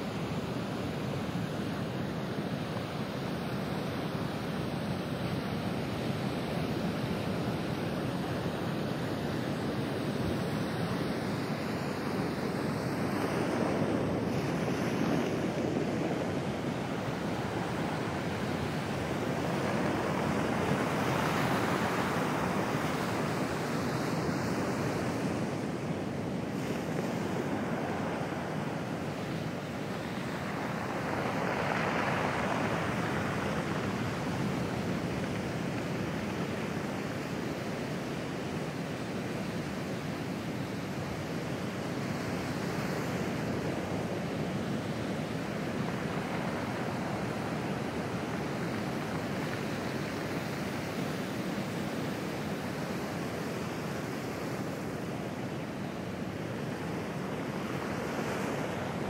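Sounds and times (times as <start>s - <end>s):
surf washing over pebbles: 13.4s - 39.7s.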